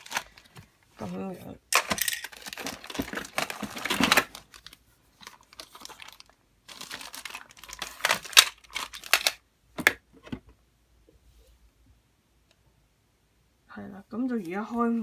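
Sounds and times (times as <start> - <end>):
plastic bags crinkling: 0.0 - 9.4.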